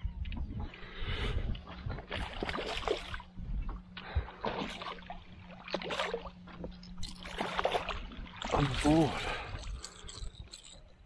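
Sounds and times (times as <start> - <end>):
fish thrashing and splashing: 4.4 - 10.8.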